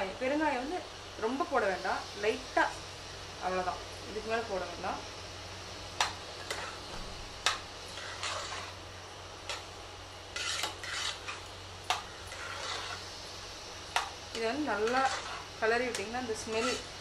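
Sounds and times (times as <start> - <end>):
spoon scraping through rice: 6.4 - 6.8, 7.4 - 8.8, 10.3 - 13.1, 14.0 - 17.0.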